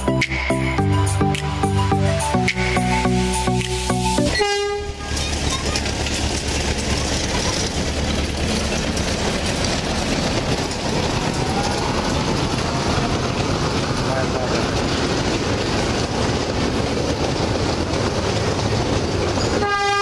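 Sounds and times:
miniature train rolling on track: 4.3s - 20.0s.

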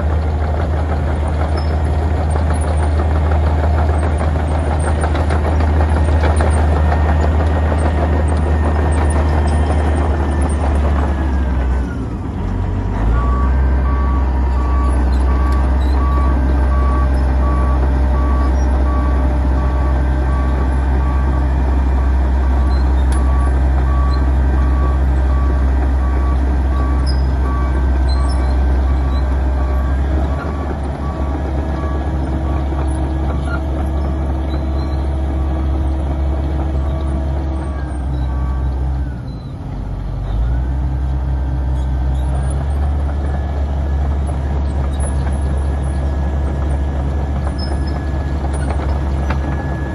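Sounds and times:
diesel engine droning: 0.0s - 49.9s.

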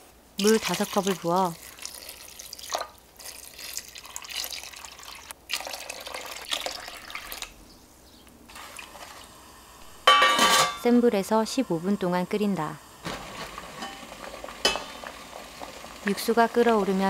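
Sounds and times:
water pouring into pot: 0.4s - 7.6s, 8.5s - 9.4s, 13.0s - 17.0s.

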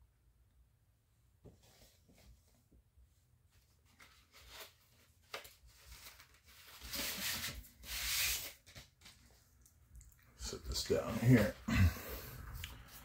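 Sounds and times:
paper and cardboard rustling: 3.5s - 9.4s.

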